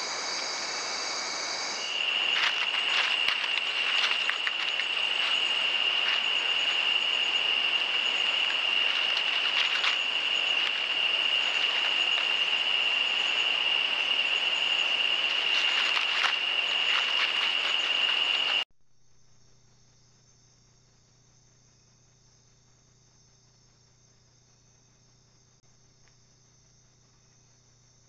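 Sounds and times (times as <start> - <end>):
high-pitched insect trill: 0.0 - 18.6
insect noise: 0.0 - 28.0.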